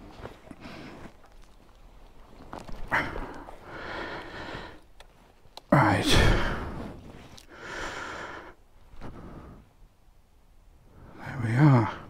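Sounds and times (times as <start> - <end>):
man sighing heavily: 5.8 - 6.9.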